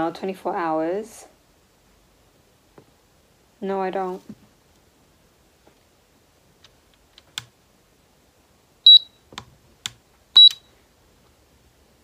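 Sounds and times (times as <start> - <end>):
short high clock beeps: 8.9 - 9.1, 10.4 - 10.6.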